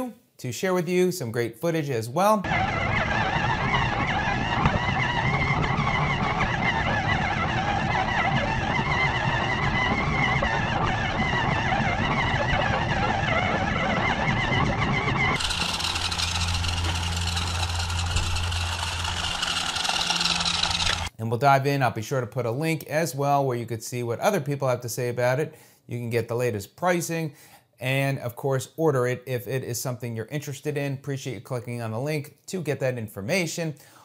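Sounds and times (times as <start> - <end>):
rc truck motors whining: 2.5 - 21.1.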